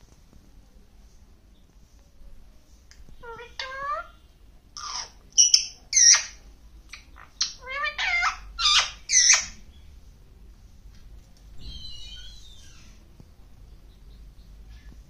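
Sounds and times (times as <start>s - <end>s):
parakeet high calls: 3.2s - 4.2s, 4.8s - 9.6s, 11.6s - 12.9s.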